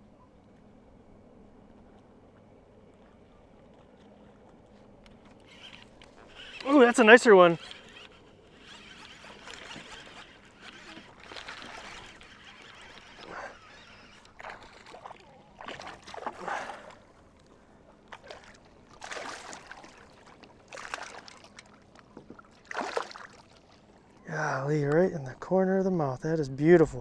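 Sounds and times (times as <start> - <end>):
fish splashing at water surface: 9.2 - 17.0, 18.1 - 23.8.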